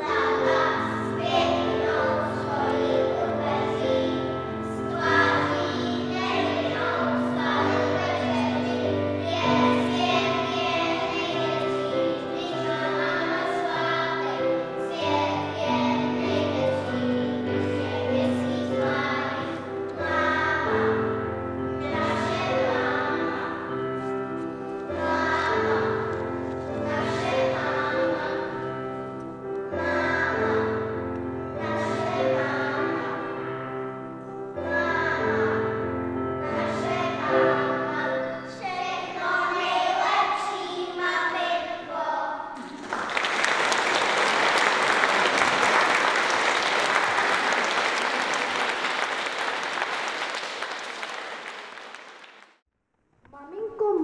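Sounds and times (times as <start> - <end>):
children singing: 0.0 - 33.8, 34.5 - 42.2.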